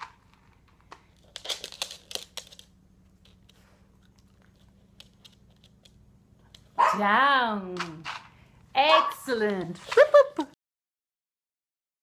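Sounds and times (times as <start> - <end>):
dog crunching a treat: 0.0 - 6.7.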